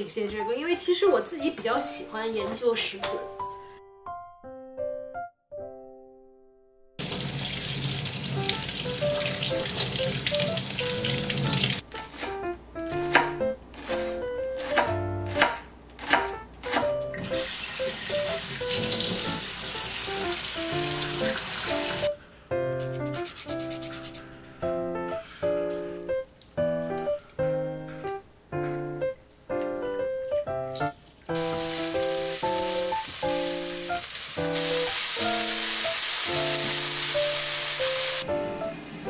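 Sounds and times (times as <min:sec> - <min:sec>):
light piano music: 0:00.0 - 0:39.0
knife chopping on cutting board: 0:12.1 - 0:17.4
steady hiss: 0:31.4 - 0:38.3.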